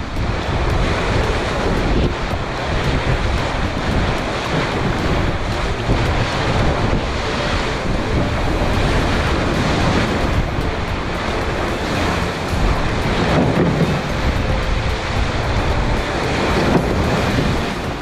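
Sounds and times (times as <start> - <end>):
waves rushing along hull: 0.0 - 18.0
wind buffeting microphone: 0.0 - 18.0.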